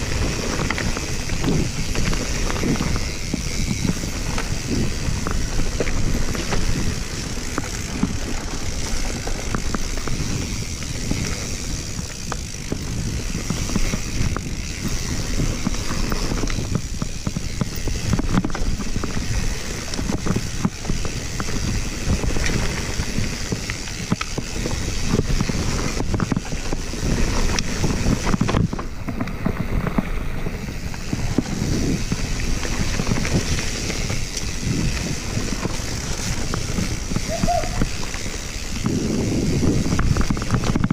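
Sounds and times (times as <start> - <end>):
bike rattling and knocking: 0.0 - 40.9
knobby tyres on dirt: 0.0 - 40.9
wind: 0.0 - 40.9.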